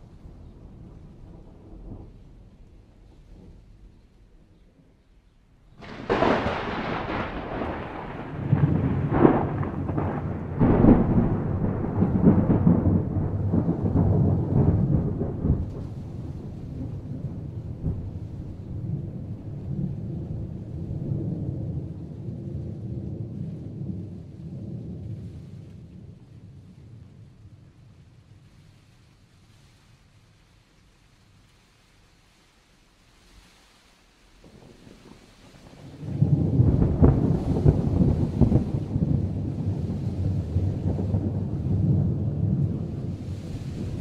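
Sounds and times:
rolling thunder rumble: 0:00.0 - 0:28.8, 0:34.3 - 0:44.0
thunder cracks: 0:05.8 - 0:25.1, 0:34.4 - 0:44.0.

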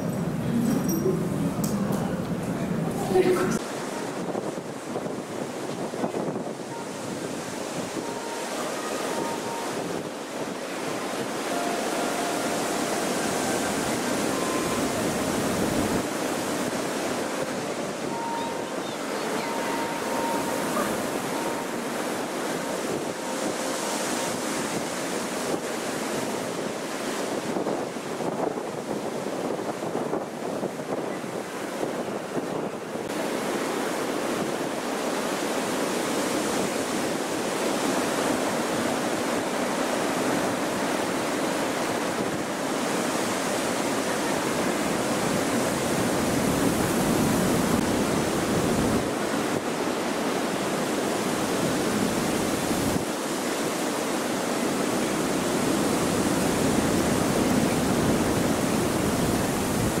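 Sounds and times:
strong gusty wind on microphone: 0:00.0 - 1:00.0.

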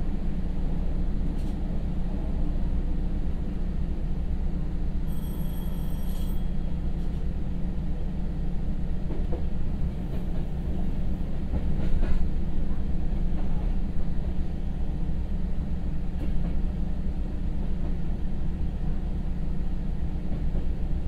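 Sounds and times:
wheels rumbling on rails: 0:00.0 - 0:21.0.

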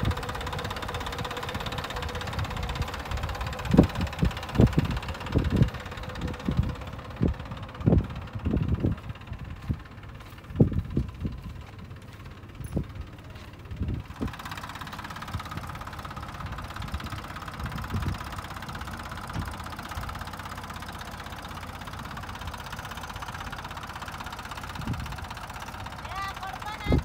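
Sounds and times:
tractor diesel engine running: 0:00.0 - 0:27.0.

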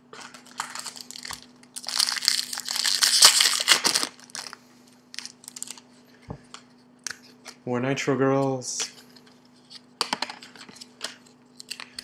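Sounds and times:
wrapper crinkling: 0:00.2 - 0:05.8.

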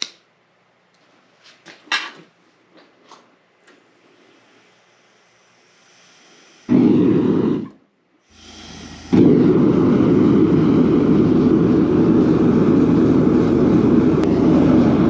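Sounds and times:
gas burner roaring: 0:03.7 - 0:15.0
low hum: 0:04.2 - 0:15.0
rush of flame: 0:06.7 - 0:15.0.

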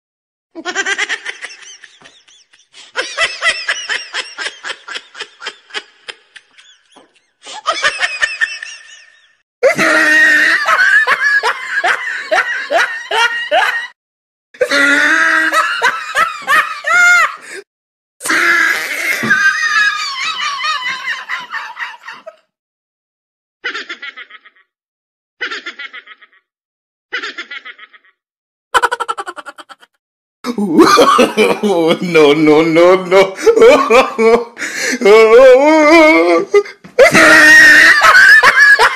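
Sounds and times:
people laughing: 0:00.6 - 0:14.0, 0:14.7 - 0:17.6, 0:19.1 - 0:22.4, 0:28.8 - 0:29.9, 0:30.5 - 0:38.9.

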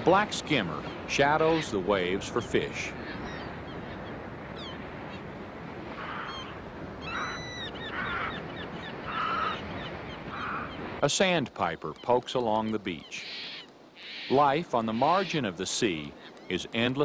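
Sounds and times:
seabirds calling: 0:00.0 - 0:17.0.

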